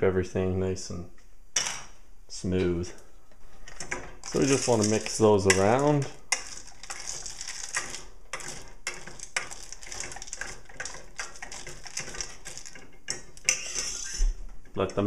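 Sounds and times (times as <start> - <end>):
spoon scraping metal bowl: 4.2 - 14.4.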